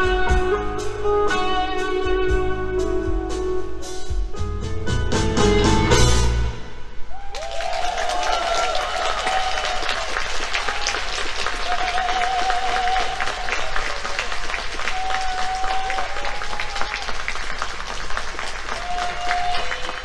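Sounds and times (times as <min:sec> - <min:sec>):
audience applauding: 0:07.2 - 0:20.0.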